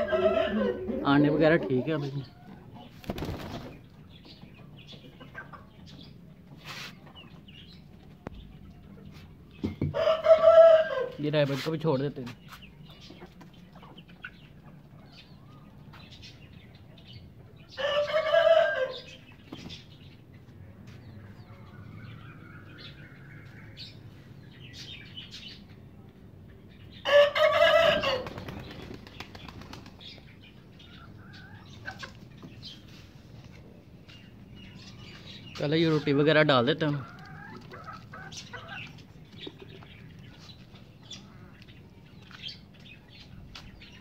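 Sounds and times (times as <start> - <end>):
chicken loud pitched call: 0.0 - 1.0
chickens scratching: 2.9 - 3.8, 6.5 - 7.2, 11.4 - 13.6
small chicken calls: 17.6 - 19.9, 26.9 - 33.0, 36.8 - 43.3.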